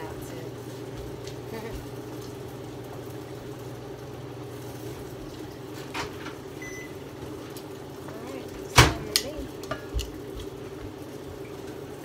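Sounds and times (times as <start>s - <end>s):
low mechanical hum: 0.0s - 12.0s.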